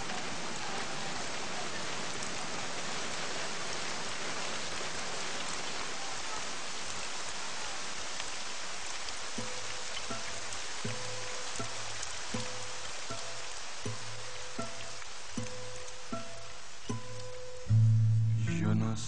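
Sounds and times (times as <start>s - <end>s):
rain falling on wet ground: 0.0s - 19.0s
music with held notes: 10.9s - 19.0s.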